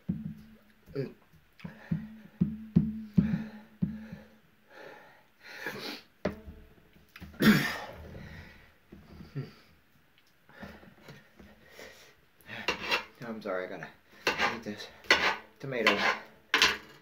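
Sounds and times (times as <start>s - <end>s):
man breathing hard: 1.6s - 2.4s, 3.0s - 6.1s, 7.7s - 9.6s.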